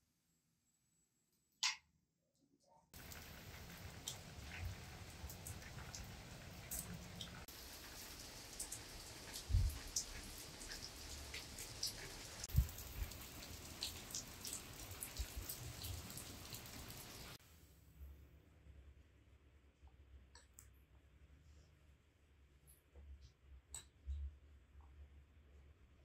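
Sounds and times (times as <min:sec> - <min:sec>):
steady rain falling: 0:03.0 - 0:17.4.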